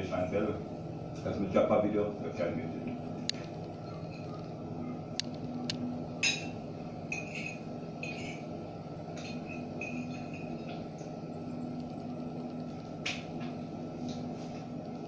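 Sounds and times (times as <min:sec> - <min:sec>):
steady low hum: 0:00.0 - 0:15.0
utensil clinking against plate: 0:06.2 - 0:08.5, 0:09.1 - 0:10.8.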